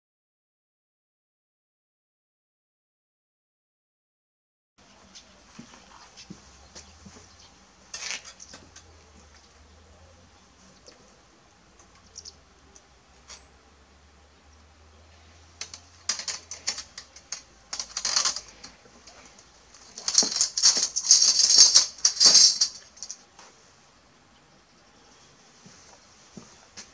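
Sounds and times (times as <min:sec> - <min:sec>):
steel blade rattling and clinking: 0:13.1 - 0:13.6, 0:15.6 - 0:23.2.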